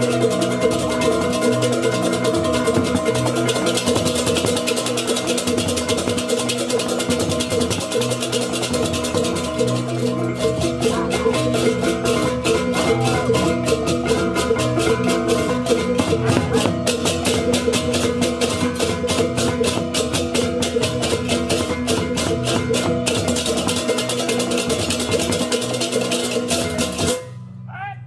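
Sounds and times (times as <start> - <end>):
metallophone tones: 9.3 - 18.2.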